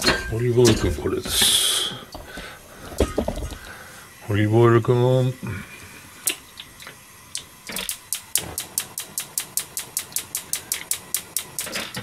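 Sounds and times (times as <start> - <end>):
gas hob igniter clicking: 6.2 - 12.0.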